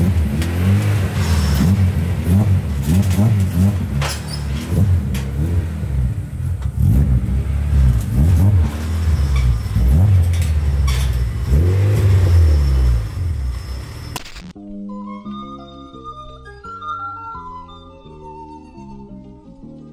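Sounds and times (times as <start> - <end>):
car engine revving in blips: 0.0 - 14.2
music: 14.6 - 19.9.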